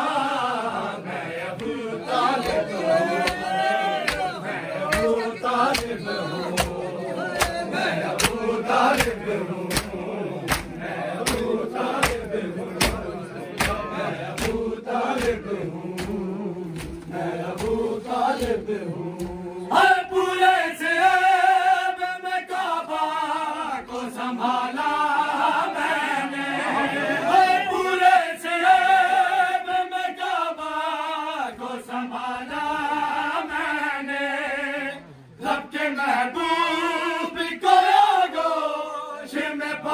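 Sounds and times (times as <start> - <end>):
men chanting: 0.0 - 39.9
hands slapping chests: 3.2 - 6.8, 7.4 - 19.4.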